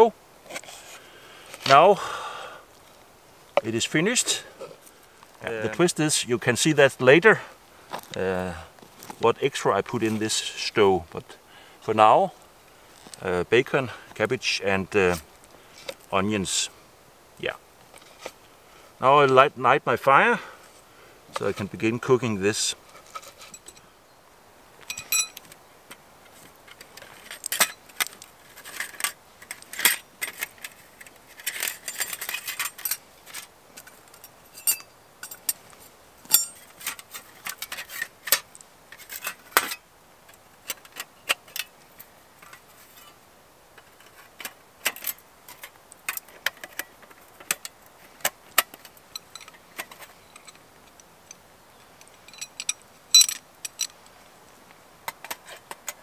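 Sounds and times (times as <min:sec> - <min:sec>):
metal parts clinking: 0:23.0 - 0:23.8, 0:24.8 - 0:25.5, 0:26.7 - 0:35.6, 0:36.2 - 0:39.8, 0:43.8 - 0:50.6, 0:52.0 - 0:54.0.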